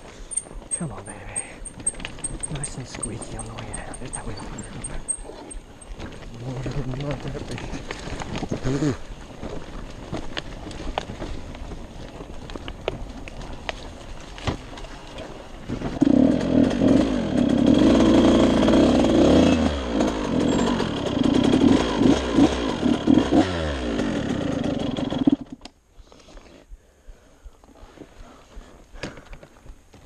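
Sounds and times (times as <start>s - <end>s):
dirt bike engine revving: 15.8s - 25.6s.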